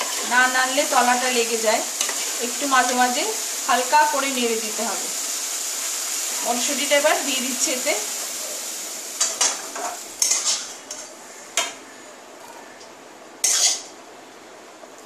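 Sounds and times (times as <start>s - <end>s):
peas scraped into a pot: 10.2s - 10.8s.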